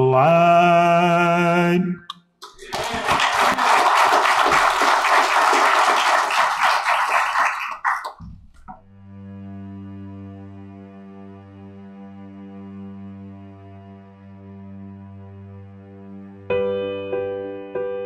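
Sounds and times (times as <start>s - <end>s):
man singing: 0.0s - 2.1s
audience clapping: 2.4s - 8.3s.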